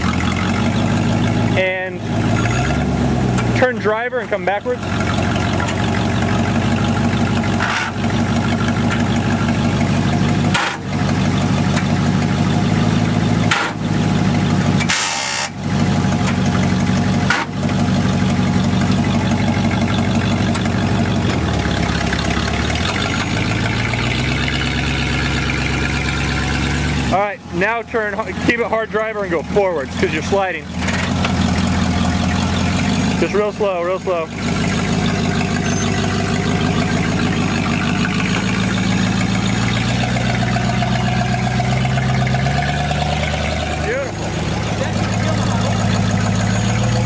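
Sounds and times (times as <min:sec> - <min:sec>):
buggy engine under load: 0:00.0 - 0:47.0.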